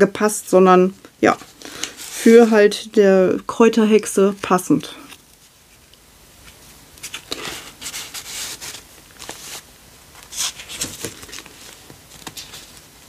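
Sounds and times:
paper pages rustling: 0:04.3 - 0:12.9.

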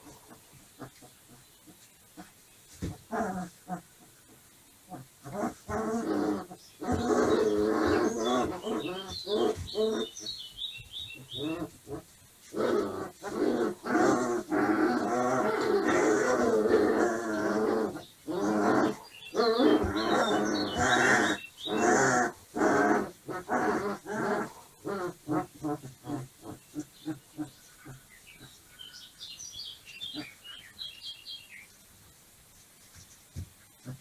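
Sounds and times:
puppies growling: 0:02.2 - 0:10.3, 0:11.2 - 0:28.9.

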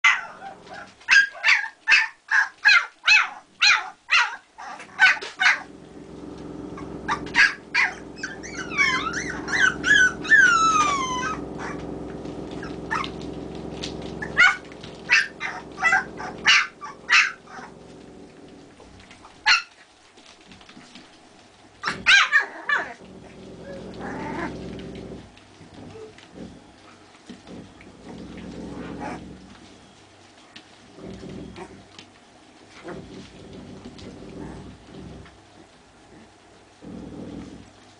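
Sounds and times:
steady low hum: 0:05.5 - 0:19.5, 0:23.0 - 0:30.1, 0:32.8 - 0:37.9
puppies yapping: 0:06.6 - 0:19.8
puppies whining squeals: 0:06.8 - 0:11.8.

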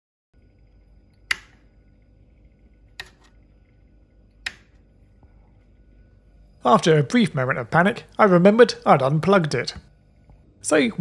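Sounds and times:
faint steady hum: 0:00.4 - 0:11.0
power switch clicks: 0:01.1 - 0:01.6, 0:03.0 - 0:03.3, 0:04.4 - 0:04.8.

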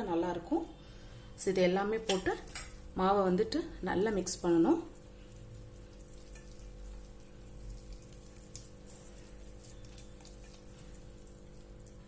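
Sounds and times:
hand squishing dough in a bowl: 0:03.8 - 0:12.0.

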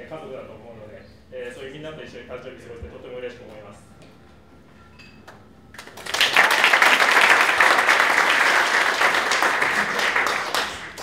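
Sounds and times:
crowd applauding: 0:05.8 - 0:11.0.

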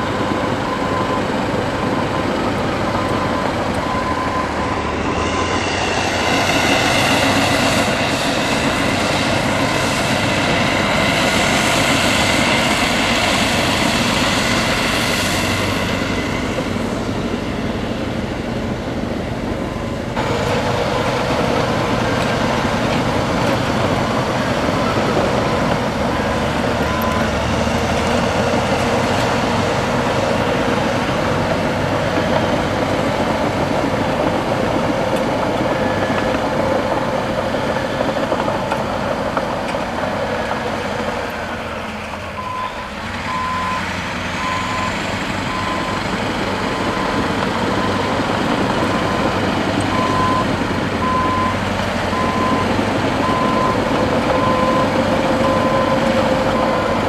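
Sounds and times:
reversing alarm beeping: 0:00.0 - 0:16.6, 0:23.8 - 0:28.8, 0:42.4 - 0:57.0
bulldozer diesel engine running: 0:00.0 - 0:57.0.

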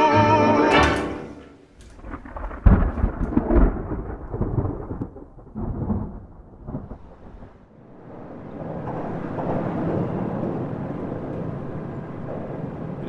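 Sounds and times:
person singing: 0:00.0 - 0:01.3
low rolling rumble: 0:00.8 - 0:13.0.

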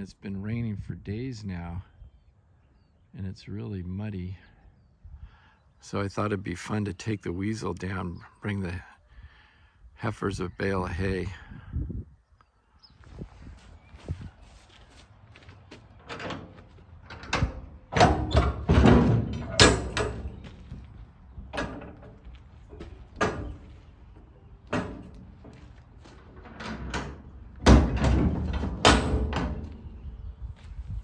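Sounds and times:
metal clanks of locking bars: 0:16.0 - 0:20.4, 0:21.5 - 0:22.2, 0:22.8 - 0:23.7, 0:24.7 - 0:25.3, 0:26.2 - 0:29.8
heavy metal doors scraping: 0:16.0 - 0:30.2.

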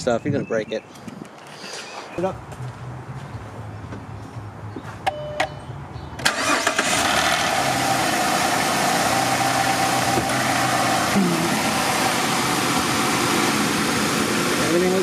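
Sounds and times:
car engine cranking and starting: 0:06.2 - 0:15.0
car engine idling: 0:06.3 - 0:15.0.

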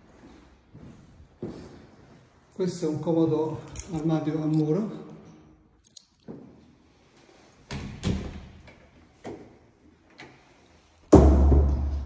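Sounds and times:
loud door thump: 0:11.1 - 0:12.0.

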